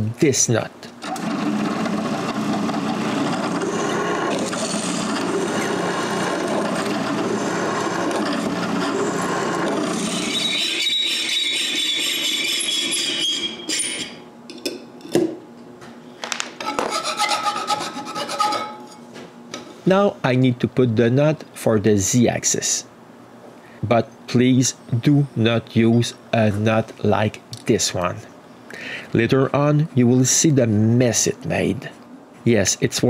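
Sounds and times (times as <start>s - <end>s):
drill press grinding through metal: 1.0s - 14.2s
high squeal: 9.8s - 14.2s.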